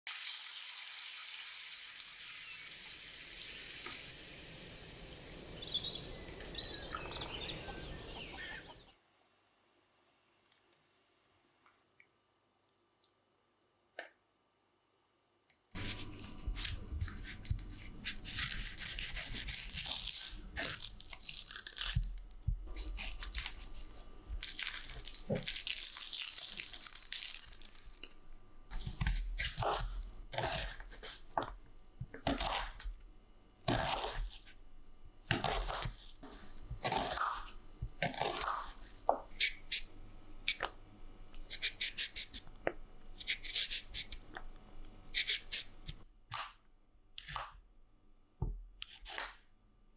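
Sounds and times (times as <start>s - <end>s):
knife slicing onion: 15.8s - 24.4s, 28.7s - 32.9s, 33.6s - 34.6s, 35.3s - 40.7s, 41.4s - 42.6s, 43.2s - 44.4s, 45.1s - 46.6s, 47.2s - 47.6s, 48.8s - 49.4s
onion skin crackling and tearing: 15.8s - 31.5s, 35.3s - 40.7s.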